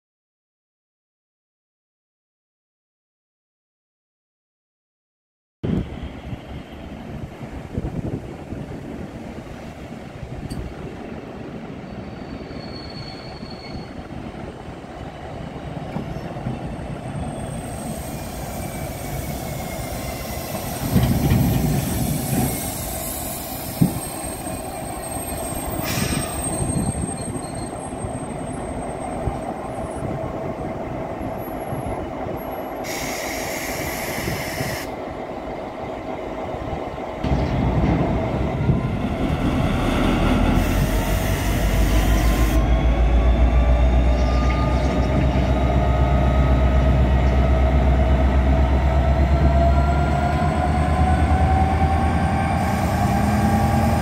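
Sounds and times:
wheels squealing on rails: 0:11.4 - 0:30.6, 0:31.3 - 0:35.0, 0:38.8 - 0:54.0
diesel locomotive engine running: 0:14.0 - 0:54.0
short hiss: 0:32.8 - 0:34.9.

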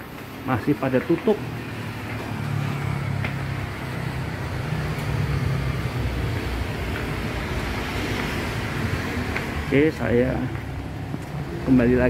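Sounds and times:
traffic engine rumble: 0:00.0 - 0:12.0.

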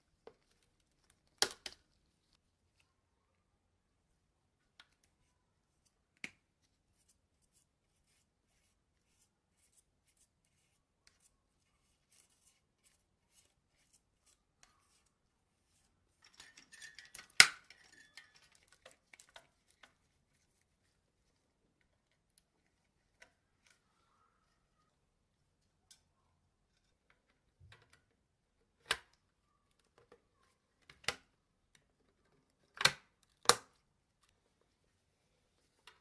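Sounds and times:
plastic clicking and handling: 0:00.1 - 0:02.9, 0:16.2 - 0:20.7, 0:26.7 - 0:34.8.

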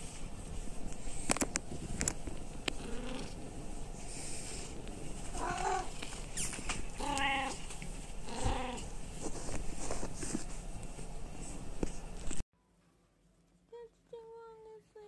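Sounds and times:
cat meowing: 0:05.4 - 0:05.9, 0:07.0 - 0:07.6, 0:08.3 - 0:08.9.

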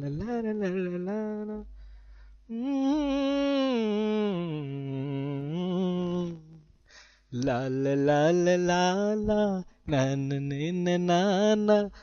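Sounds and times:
man singing a wordless note: 0:00.0 - 0:01.7, 0:02.5 - 0:06.7.

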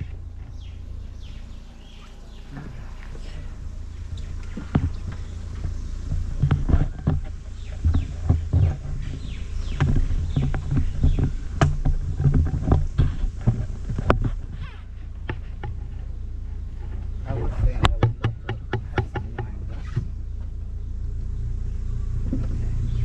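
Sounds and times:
car knocks and rattles: 0:00.0 - 0:21.5
wind rumble on microphone: 0:00.0 - 0:23.0.

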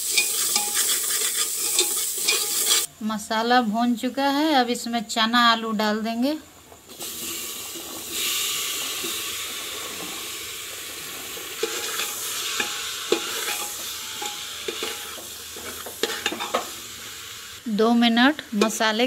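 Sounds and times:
steel spoon scraping a pot: 0:00.0 - 0:02.9, 0:11.5 - 0:16.7
food sizzling in hot masala: 0:00.0 - 0:19.0.

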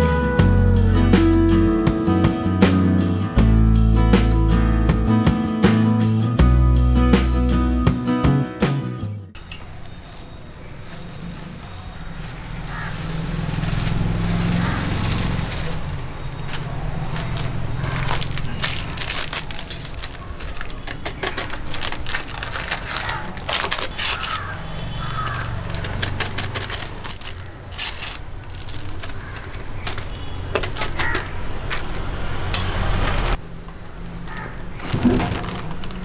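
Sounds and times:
plastic packets crinkling: 0:09.4 - 0:32.0, 0:34.3 - 0:36.0.

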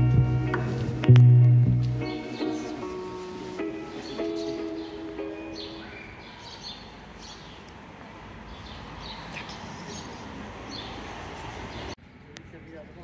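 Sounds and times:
small birds chirping: 0:02.1 - 0:02.9, 0:03.7 - 0:07.8, 0:08.4 - 0:11.1.

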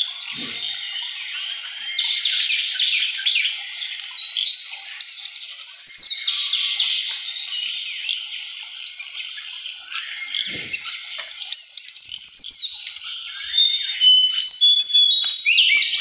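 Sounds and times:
bird trilling: 0:00.0 - 0:00.8
wild birds singing: 0:00.0 - 0:16.0.

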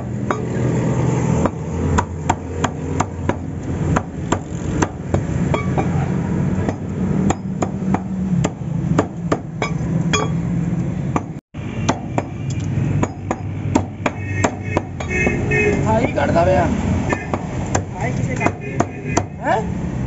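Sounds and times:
cleaver chopping on wooden block: 0:01.4 - 0:05.8, 0:13.0 - 0:15.4, 0:17.1 - 0:19.4.

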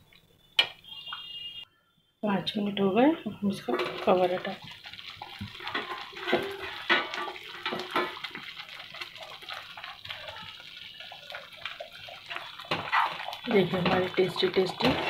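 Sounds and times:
thick bubbles popping in a pan: 0:03.4 - 0:15.0.

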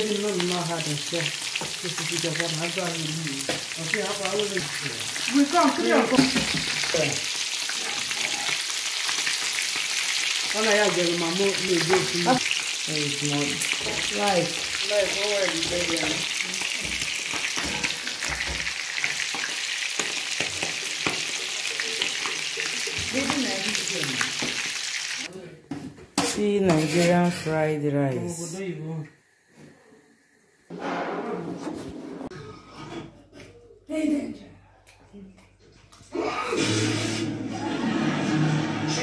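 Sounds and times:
rice sizzling in a frying pan: 0:00.0 - 0:25.3
person speaking: 0:10.5 - 0:12.4, 0:26.3 - 0:29.0
metal spoon stirring in pan: 0:15.6 - 0:23.5, 0:26.2 - 0:27.5.

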